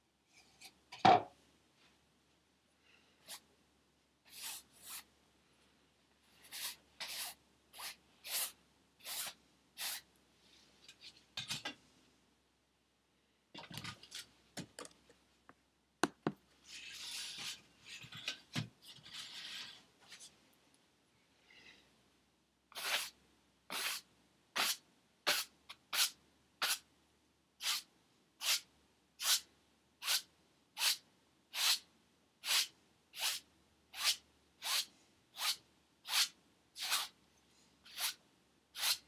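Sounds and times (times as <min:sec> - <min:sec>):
drawing stick scraping canvas: 0:04.3 - 0:05.1, 0:06.3 - 0:10.1, 0:16.6 - 0:20.3, 0:22.7 - 0:24.0, 0:30.0 - 0:31.8, 0:32.4 - 0:37.2, 0:37.9 - 0:38.2, 0:38.8 - 0:39.0.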